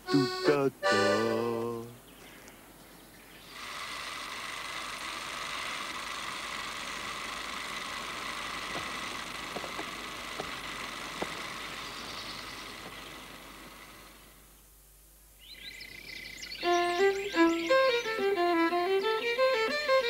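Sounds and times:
movie camera whirring: 3.5 - 14.4, 16.6 - 20.0.

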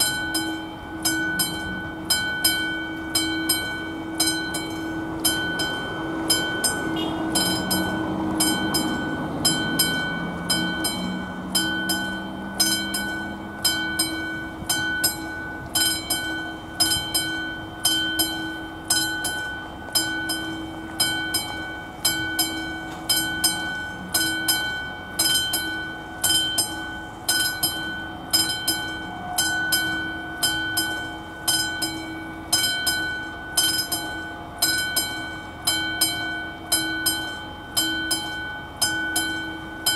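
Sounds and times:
level-crossing warning bell: 0.0 - 39.9
low drone rising in pitch: 4.4 - 15.7.

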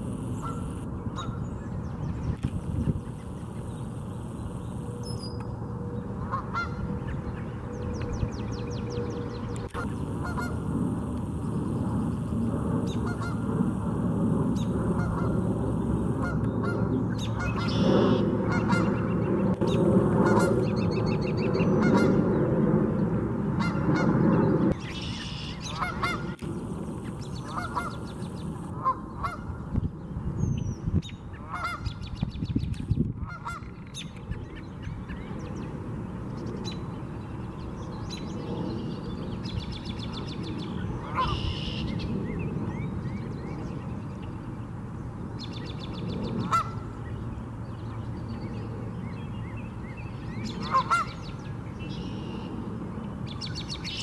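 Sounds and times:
geese honking: 0.2 - 1.4, 6.2 - 6.9, 9.7 - 10.7, 12.8 - 13.6, 14.9 - 19.1, 21.8 - 22.2, 25.1 - 26.4, 27.4 - 28.2, 28.8 - 29.5, 31.4 - 31.9, 41.0 - 41.8, 46.4 - 46.8, 50.6 - 51.2.

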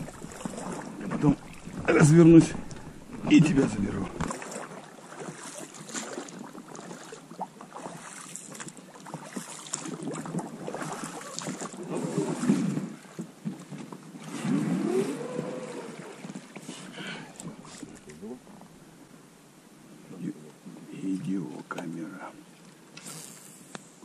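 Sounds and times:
water sloshing and splashing: 0.0 - 18.7.

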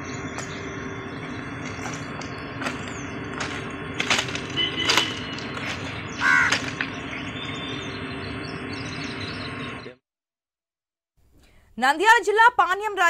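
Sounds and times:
steady low hum: 0.0 - 10.0
sharp knocks: 1.7 - 6.9.

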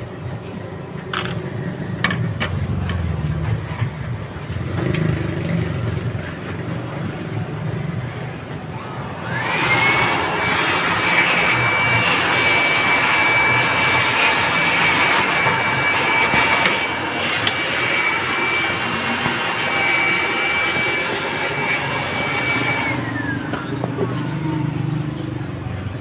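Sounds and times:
rushing airy noise: 6.9 - 23.6
electric motor whining: 8.7 - 25.0.

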